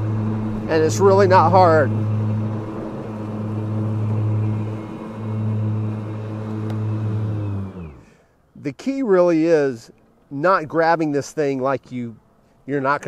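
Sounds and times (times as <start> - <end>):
electric mower motor humming: 0.0 - 8.2.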